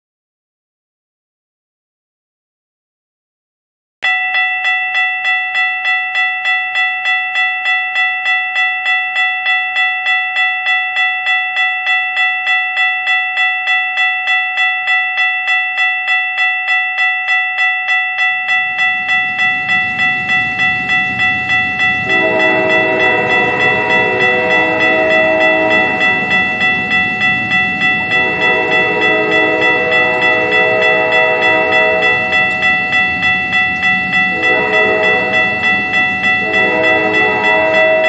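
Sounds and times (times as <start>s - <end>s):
railroad crossing bell dinging: 4.0s - 38.0s
train rumble: 18.4s - 38.0s
train horn chord: 21.6s - 38.0s.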